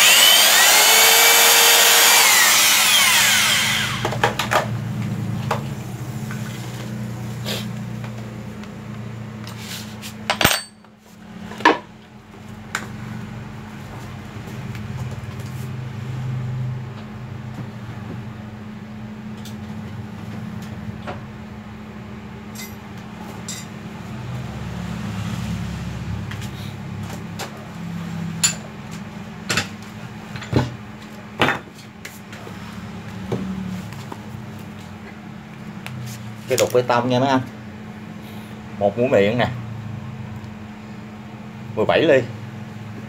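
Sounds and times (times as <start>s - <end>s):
metal knocks of hammer set down: 10.3s - 10.8s.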